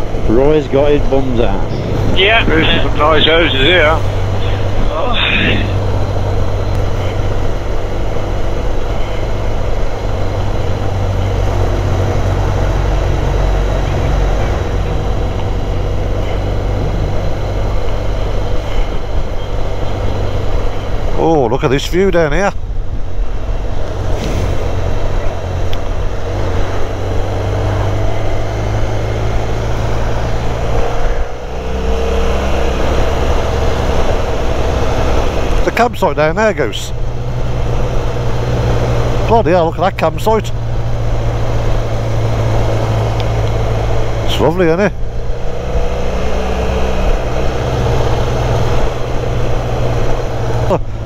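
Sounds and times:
wind noise rushing: 0.0s - 6.6s, 22.6s - 35.7s
motorcycle engine drone: 0.0s - 51.0s
road and wind noise: 0.0s - 51.0s
motorcycle engine running: 5.6s - 21.2s.

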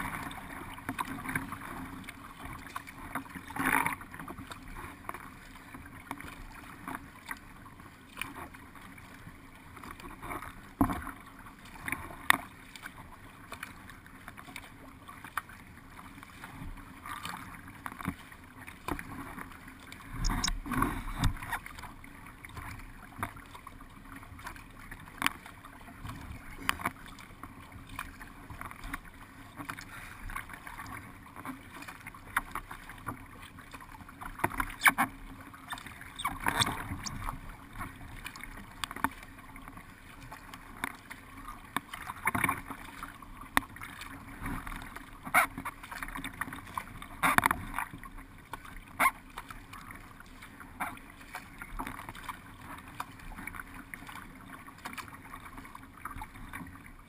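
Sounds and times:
water rushing along boat hull: 0.0s - 57.0s
sharp knocks and splashes: 20.1s - 21.8s, 35.7s - 37.5s.

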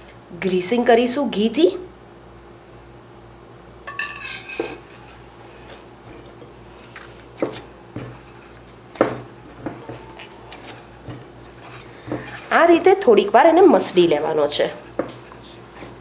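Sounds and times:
hands kneading dough: 4.8s - 16.0s.

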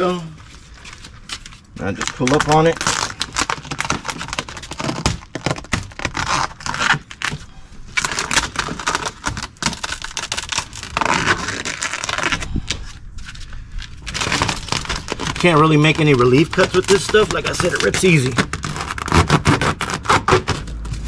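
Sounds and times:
vinyl film crackling and crinkling: 0.0s - 21.0s.

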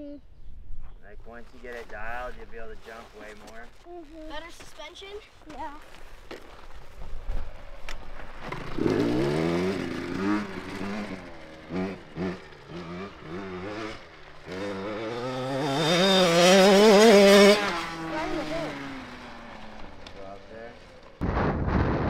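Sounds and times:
dirt bike engine revving: 6.8s - 21.4s.

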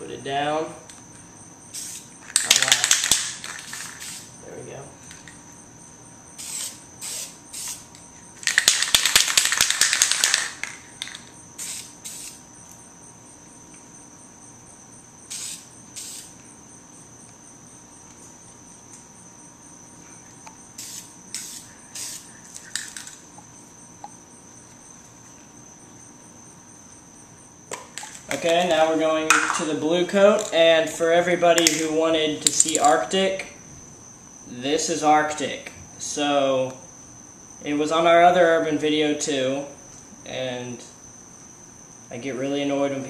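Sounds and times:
aerosol spray can hissing: 1.7s - 2.1s, 3.6s - 4.3s, 6.4s - 7.9s, 11.6s - 12.4s, 15.3s - 16.3s, 20.8s - 22.3s.

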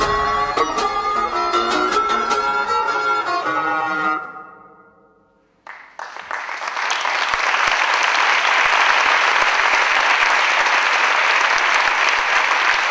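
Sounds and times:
audience applauding: 5.6s - 12.9s.

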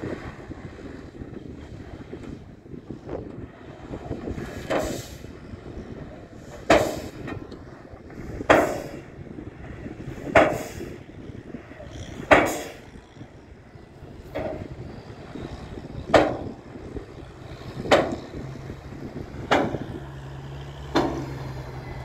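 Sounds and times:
truck engine rumble: 0.0s - 22.0s
sharp bangs of dump truck: 4.4s - 5.3s, 6.5s - 7.5s, 8.3s - 9.2s, 10.2s - 11.0s, 12.2s - 13.0s, 14.2s - 15.0s, 15.9s - 17.0s, 17.6s - 22.0s.

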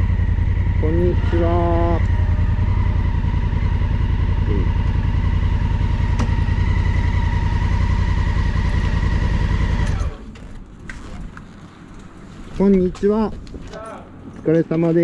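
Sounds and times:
motorcycle engine idling: 0.0s - 10.4s.

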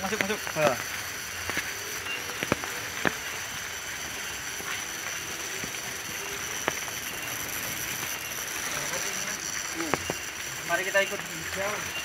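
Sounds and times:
steady hiss: 0.0s - 12.0s
footsteps on dirt path: 0.1s - 5.9s.

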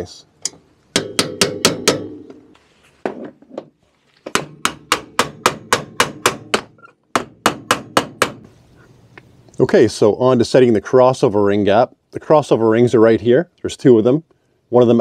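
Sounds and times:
hammer striking metal nut: 0.4s - 2.4s, 4.3s - 8.5s.

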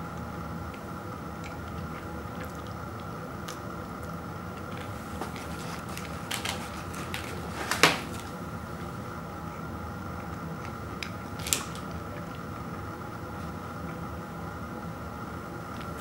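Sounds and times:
low room hum: 0.0s - 16.0s
cardboard box and wrappers crackling: 4.7s - 8.3s.

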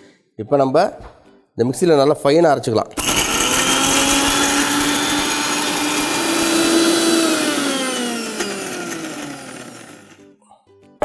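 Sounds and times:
mixer grinder motor whine: 3.0s - 10.2s.

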